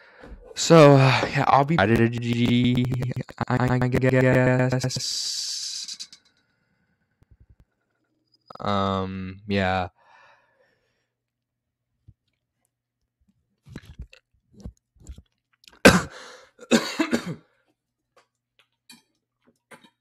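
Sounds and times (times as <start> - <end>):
person swallowing water: 13.7 - 15.9
person coughing: 15.8 - 17.4
throat clearing: 15.8 - 17.4.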